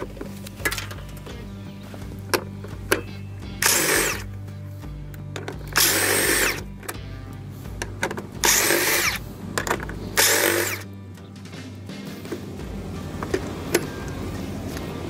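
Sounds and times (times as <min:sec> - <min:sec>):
cordless drill spinning: 0:03.5 - 0:04.4, 0:05.5 - 0:07.0, 0:08.4 - 0:11.0.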